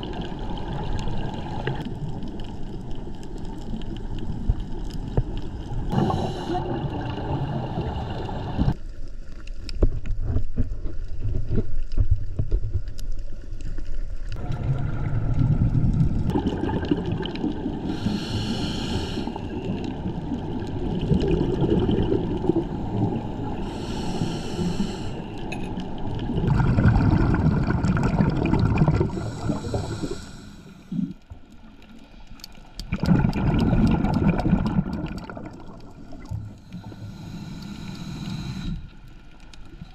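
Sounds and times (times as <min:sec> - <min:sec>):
gurgling exhaled bubbles: 0:05.7 - 0:08.8, 0:14.4 - 0:30.3, 0:32.8 - 0:36.9
low underwater rumble: 0:09.8 - 0:18.0.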